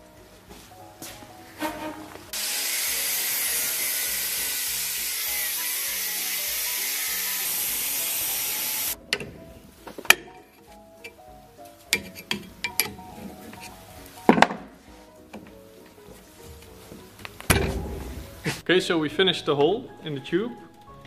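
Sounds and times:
angle grinder cutting metal: 0:02.4 - 0:09.0.

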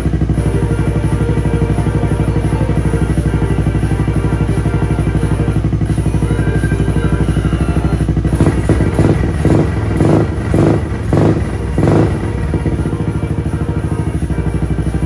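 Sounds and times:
scooter engine idling and revving: 0:00.0 - 0:15.0.

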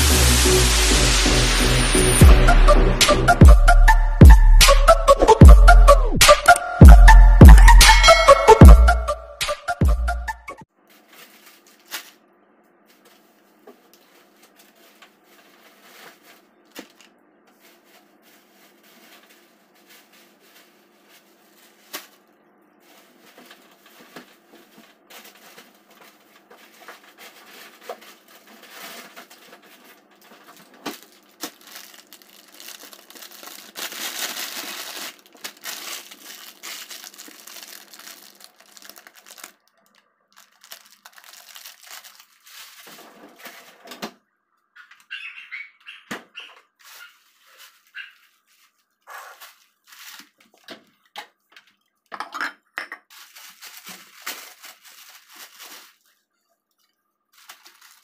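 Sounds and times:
plastic bags crinkling: 0:10.8 - 0:12.3, 0:12.9 - 0:43.8, 0:46.8 - 0:51.8, 0:53.1 - 0:58.0.

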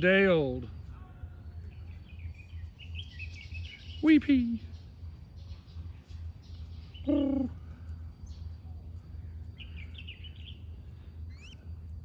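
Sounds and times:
small birds chirping: 0:00.0 - 0:12.0
peahen call: 0:06.8 - 0:07.8.

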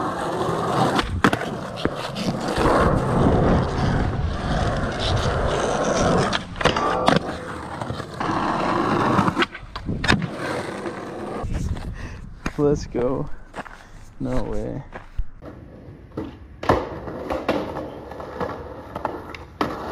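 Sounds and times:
skateboard popping and landing: 0:00.0 - 0:11.4, 0:15.4 - 0:19.9
skateboard wheels rolling on concrete: 0:00.0 - 0:19.9.

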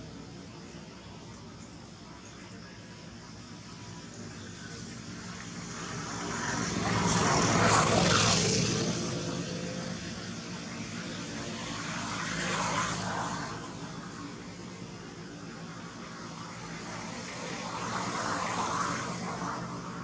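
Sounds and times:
motor engine passing by: 0:04.6 - 0:14.3.

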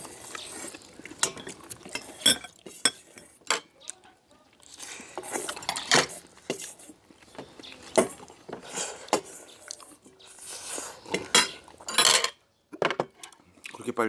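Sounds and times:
chewing: 0:00.0 - 0:11.9, 0:13.2 - 0:13.8
spoons clinking on metal bowls: 0:01.2 - 0:03.7.

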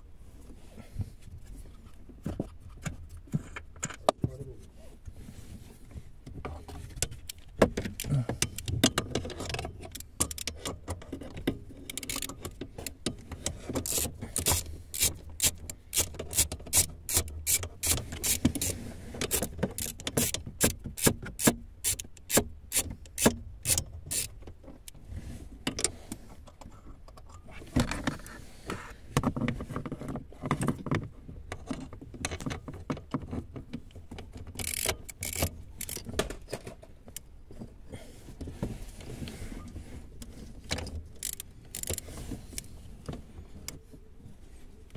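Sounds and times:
hand ratchet clicking: 0:11.9 - 0:12.4, 0:13.8 - 0:24.3, 0:34.6 - 0:36.1, 0:41.2 - 0:42.0.

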